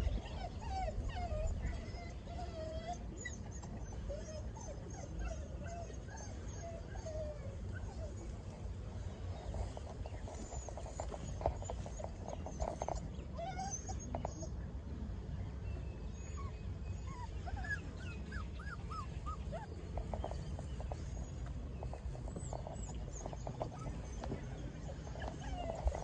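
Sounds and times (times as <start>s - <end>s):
puppies whimpering and squeaking: 0.0s - 14.6s, 16.2s - 26.0s
rustling in dry grass: 9.1s - 13.0s.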